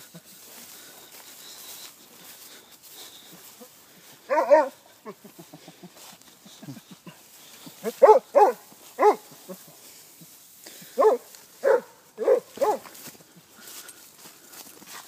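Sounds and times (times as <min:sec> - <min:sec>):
dog barking: 0:04.3 - 0:04.8, 0:07.8 - 0:09.4, 0:11.0 - 0:13.0.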